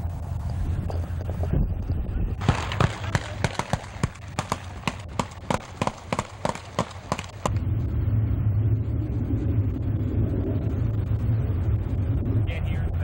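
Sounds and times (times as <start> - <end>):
steady low rumble: 0.0 - 13.0
gunshots: 2.4 - 7.6.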